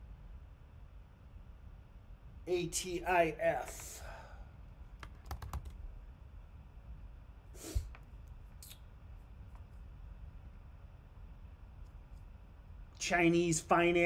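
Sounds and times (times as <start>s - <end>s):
keyboard typing: 5.0s - 5.8s.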